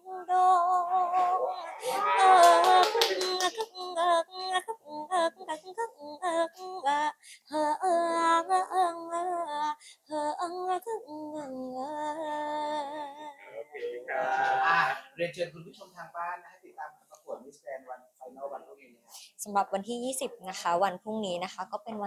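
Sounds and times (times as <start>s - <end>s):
woman singing unaccompanied: 0.0s - 13.5s
short breaths: 1.7s - 2.1s.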